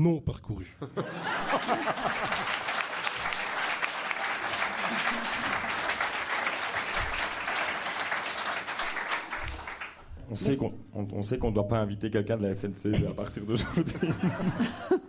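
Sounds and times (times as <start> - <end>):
speech: 0.0 - 0.8, 10.2 - 13.8
audience applauding: 1.2 - 10.1
voices over applause: 2.0 - 10.0.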